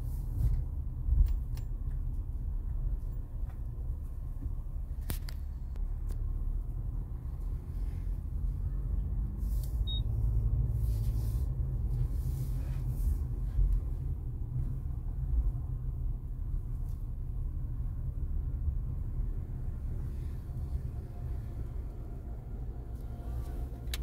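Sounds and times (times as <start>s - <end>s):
car rolling rumble: 0.0s - 24.0s.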